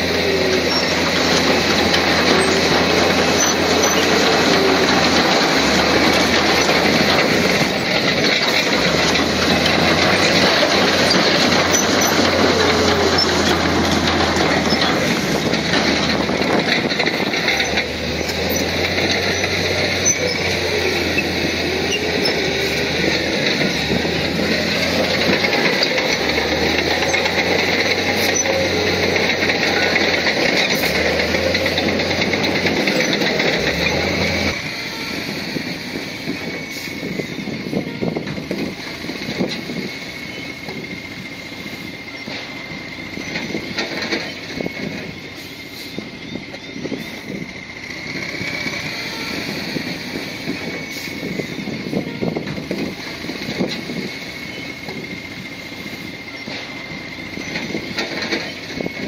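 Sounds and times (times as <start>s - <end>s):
diesel construction machinery engine: 0.0s - 59.0s.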